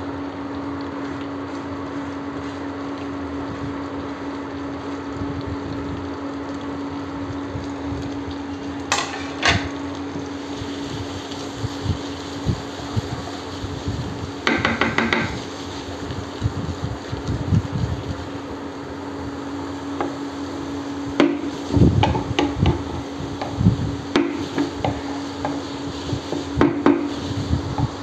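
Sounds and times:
onions frying in hot oil: 0.0 - 28.0
steady hiss and hum: 0.0 - 28.0
wooden spatula knocking in pan: 14.4 - 15.4, 22.0 - 25.6, 26.3 - 27.1.

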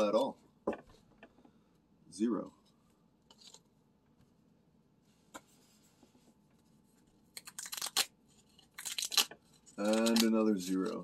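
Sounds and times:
paper ripping and crackling: 7.4 - 11.0.

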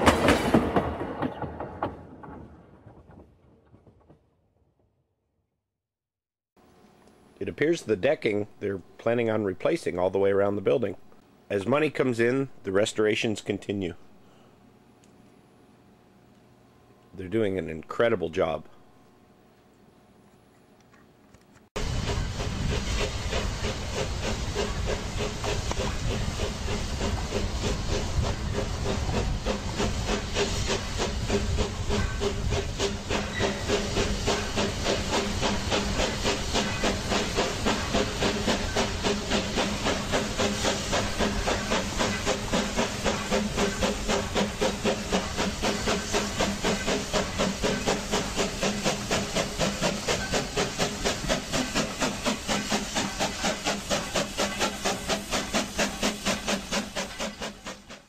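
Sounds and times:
steam hissing: 21.8 - 58.0
steam locomotive exhaust chuffs: 21.8 - 58.0.

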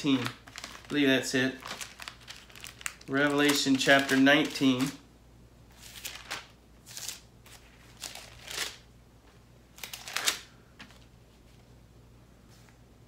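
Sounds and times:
thin pages leafed through: 0.1 - 1.0, 5.7 - 8.8.

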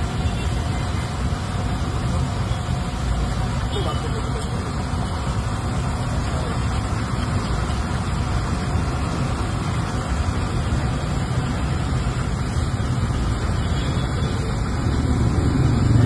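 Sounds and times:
chips frying in bubbling oil: 0.0 - 16.0.

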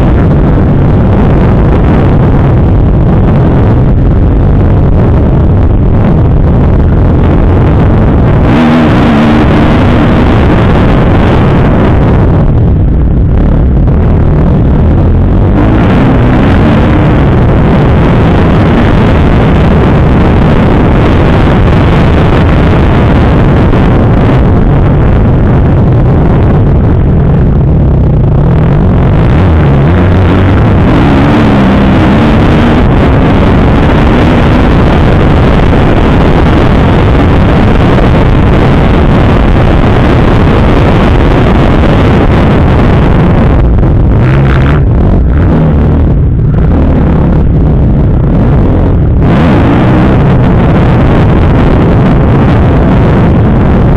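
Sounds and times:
dirt bike engine revving: 8.3 - 11.9, 29.3 - 34.5.

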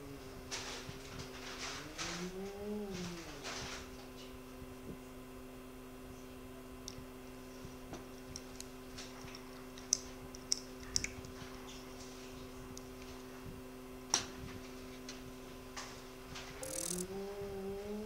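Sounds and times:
sharp clicks: 16.6 - 17.1
machine two-note tone: 16.6 - 17.2.

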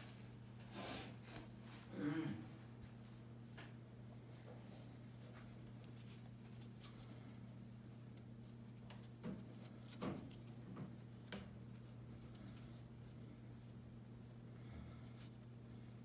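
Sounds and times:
low electrical hum: 0.0 - 16.0
hand handling knocks and rustles: 8.7 - 12.7.

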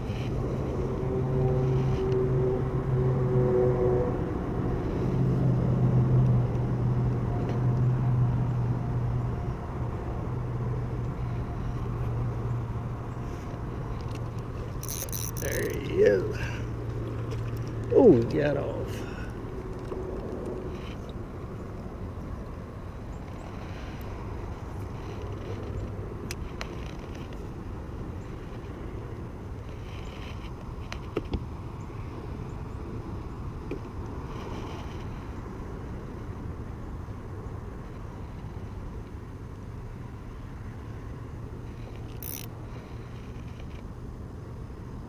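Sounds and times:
faint outdoor noise: 0.0 - 45.0
low mechanical hum: 0.0 - 45.0
small clicks: 13.9 - 15.8, 41.8 - 42.5.

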